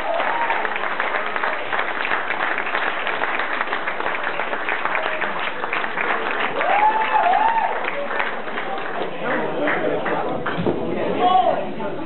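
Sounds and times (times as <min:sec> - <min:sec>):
audience clapping: 0:00.0 - 0:10.6.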